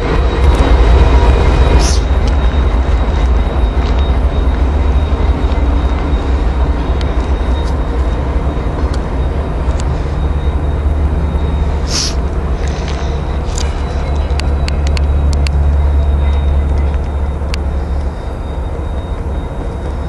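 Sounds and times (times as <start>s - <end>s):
freight train rumbling past: 0.0s - 20.0s
short hiss: 11.9s - 12.2s.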